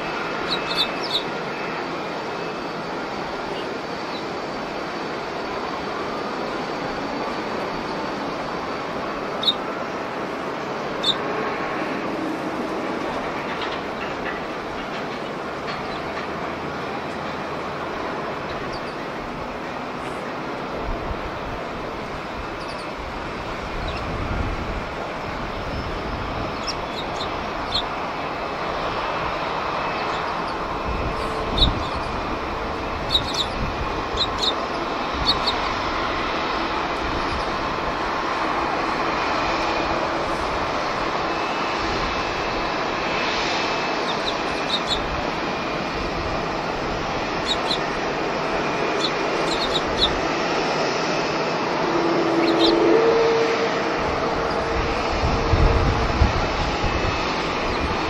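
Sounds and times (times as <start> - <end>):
jet aircraft noise: 0.0 - 58.0
sparrows chirping: 0.3 - 1.7, 7.2 - 11.8, 18.2 - 19.4, 22.2 - 24.4, 25.2 - 37.7, 39.2 - 51.0, 52.4 - 52.8.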